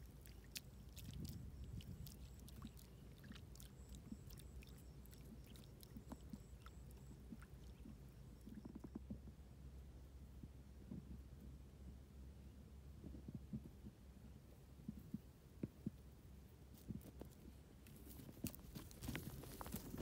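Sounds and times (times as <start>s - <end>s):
small clicks and drips: 0.0s - 9.2s
low steady rumble: 0.0s - 20.0s.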